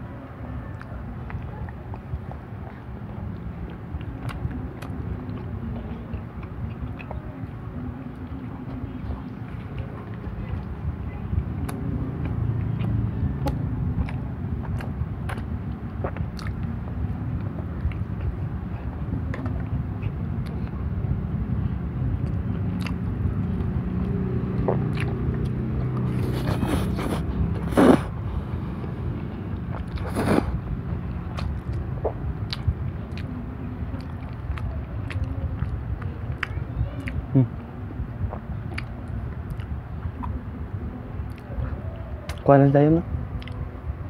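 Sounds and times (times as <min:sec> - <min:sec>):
steady low rumble: 0:00.0 - 0:44.0
man chewing noodles: 0:11.5 - 0:20.7, 0:22.2 - 0:40.4, 0:43.3 - 0:43.6.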